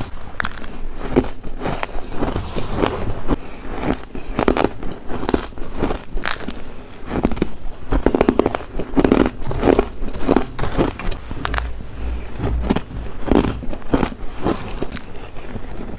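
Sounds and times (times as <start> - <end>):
ice being bitten and chewed: 0.0 - 11.2.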